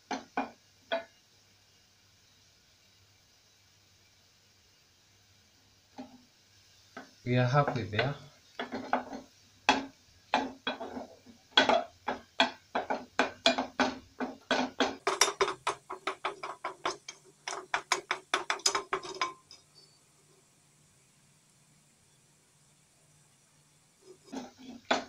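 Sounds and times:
wooden spoon scraping a metal pot: 0:07.7 - 0:09.3, 0:10.4 - 0:19.7, 0:24.0 - 0:25.0.

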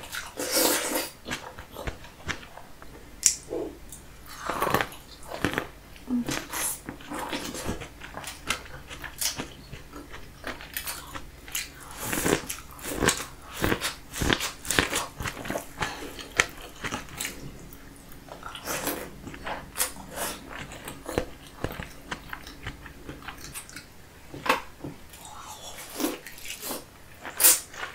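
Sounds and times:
wet chewing and lip-smacking: 0:06.3 - 0:24.0.

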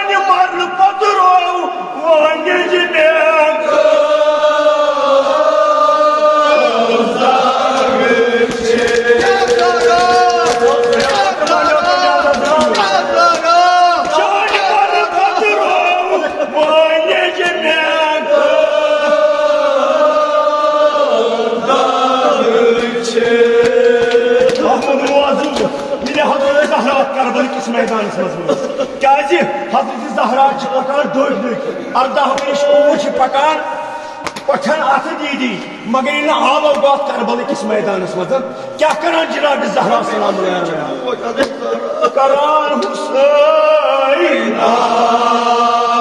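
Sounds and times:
men chanting an elegy: 0:00.0 - 0:46.0.

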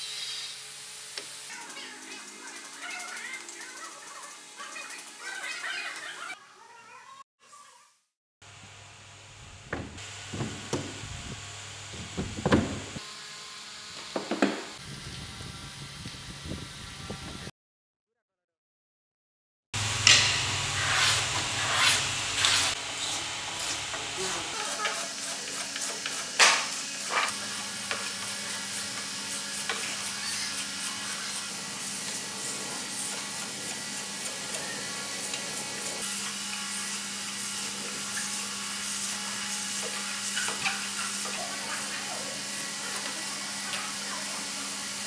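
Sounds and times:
sandpaper rasping on wood: 0:20.8 - 0:26.4, 0:27.0 - 0:43.6.

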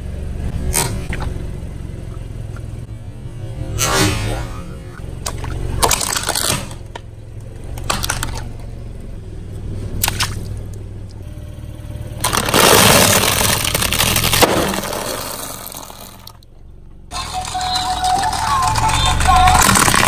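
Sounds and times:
car engine humming: 0:00.0 - 0:20.0
water balloons popping: 0:12.2 - 0:16.4.

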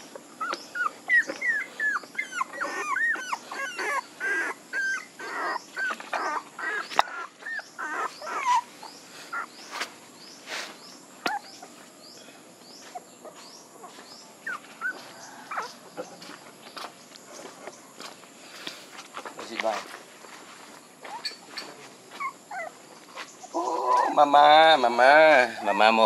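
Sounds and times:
faint high chirping: 0:00.0 - 0:18.0, 0:20.2 - 0:26.0
puppies whining: 0:00.3 - 0:09.8, 0:11.2 - 0:12.0, 0:12.8 - 0:16.5, 0:21.0 - 0:26.0.

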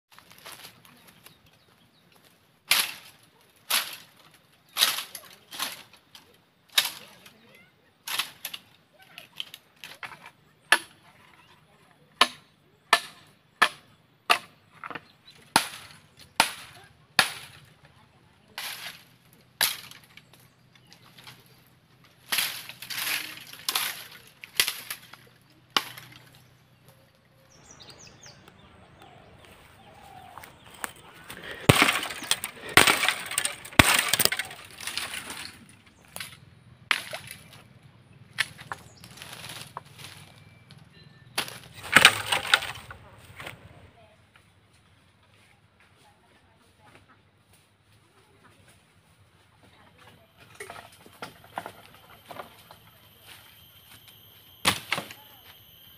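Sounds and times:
bamboo cracking and snapping: 0:02.6 - 0:07.4, 0:08.0 - 0:11.0, 0:12.2 - 0:17.7, 0:18.6 - 0:27.0, 0:29.4 - 0:37.7, 0:38.3 - 0:40.8, 0:41.4 - 0:43.7
machete chopping bamboo: 0:02.7 - 0:05.9, 0:09.4 - 0:11.0, 0:12.2 - 0:17.8, 0:18.6 - 0:20.4, 0:22.2 - 0:26.4, 0:30.0 - 0:37.6, 0:38.3 - 0:40.3, 0:41.4 - 0:43.6, 0:54.6 - 0:55.3
leaves rustling: 0:17.4 - 0:37.6, 0:38.4 - 0:40.5, 0:41.4 - 0:43.9.

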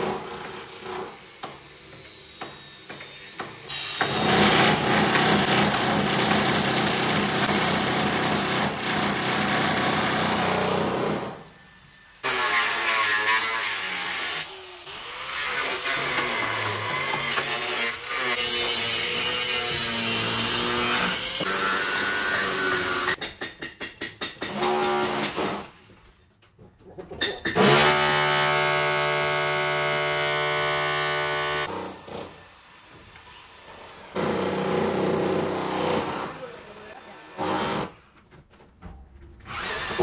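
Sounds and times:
angle grinder cutting metal: 0:12.2 - 0:23.2.

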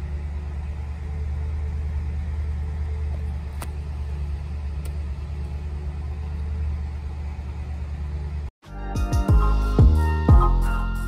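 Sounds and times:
car engine idling: 0:00.0 - 0:08.5.

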